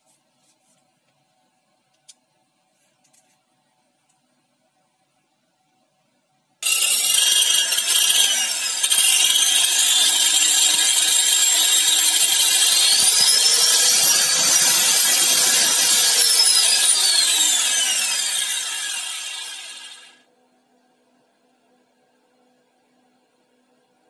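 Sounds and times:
angle grinder motor whine: 6.6 - 20.2.

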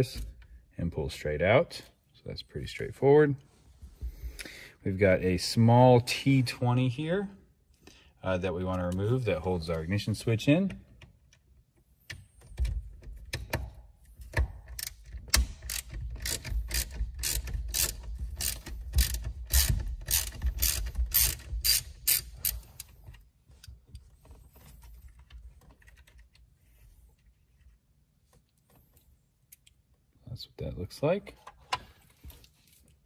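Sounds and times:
ratcheting driver clicking: 14.3 - 23.0.

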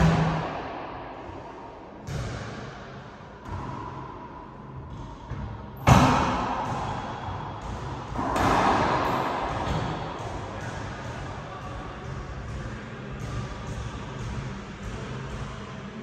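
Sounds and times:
racquet smacking ball: 7.7 - 11.1.

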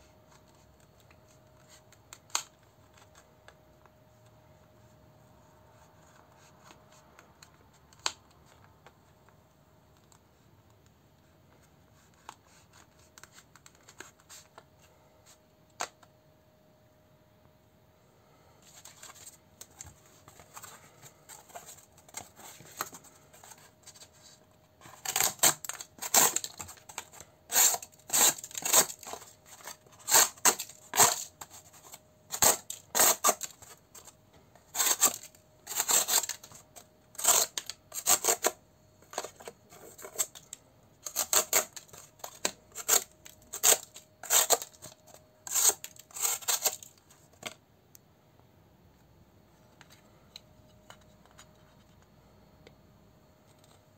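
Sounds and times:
soft handling sounds: 0.0 - 16.4, 17.2 - 53.9
knife cutting cardboard: 19.9 - 34.1, 34.7 - 46.9.

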